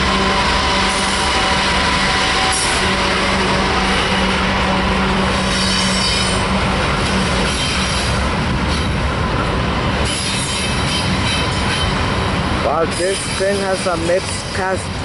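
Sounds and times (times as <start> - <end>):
diesel locomotive pulling away: 0.0 - 15.0
train wheels rumbling on rail: 0.0 - 15.0
faint high wheel squeal: 5.5 - 6.5.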